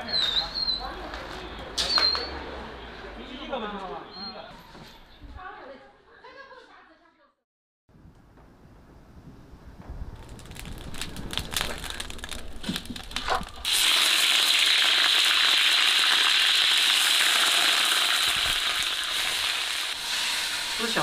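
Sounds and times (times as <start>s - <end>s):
hot oil crackling and popping: 9.8s - 21.0s
chicken sizzling in hot oil: 13.6s - 21.0s.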